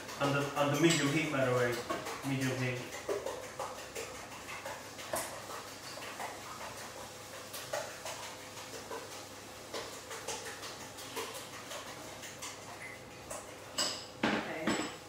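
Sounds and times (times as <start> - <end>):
fork beating eggs in bowl: 0.0 - 13.9
spatula stirring in frying pan: 0.0 - 14.2.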